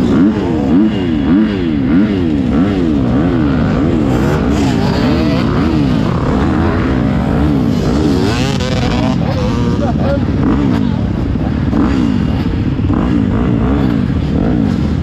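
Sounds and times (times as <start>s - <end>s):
motocross bike engine revving: 0.0s - 15.0s.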